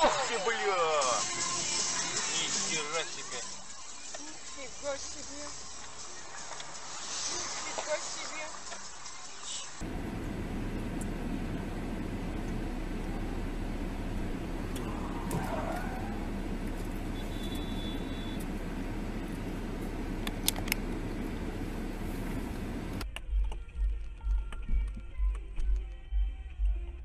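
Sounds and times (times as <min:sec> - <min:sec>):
car road and engine noise: 0:00.0 - 0:23.1
sharp clicks: 0:20.2 - 0:20.9.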